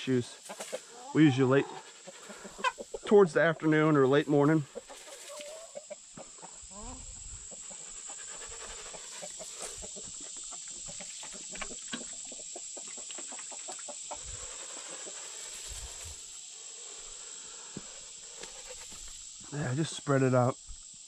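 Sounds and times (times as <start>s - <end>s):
chickens clucking: 0.0s - 16.3s.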